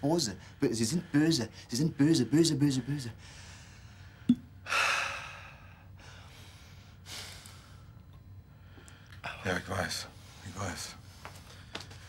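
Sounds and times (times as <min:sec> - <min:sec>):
man breathing heavily: 0:03.2 - 0:08.0.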